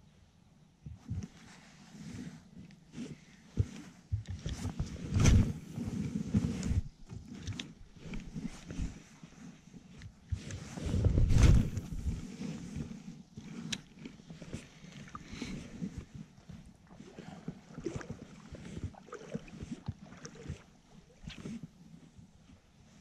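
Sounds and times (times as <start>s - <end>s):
faint clicks and soft knocks: 2.5s - 5.6s.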